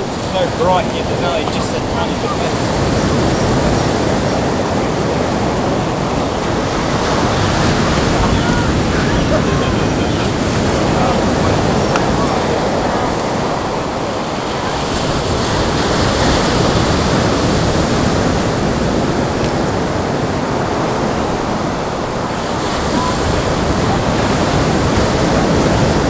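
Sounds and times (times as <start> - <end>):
surf breaking on beach: 0.0 - 26.0.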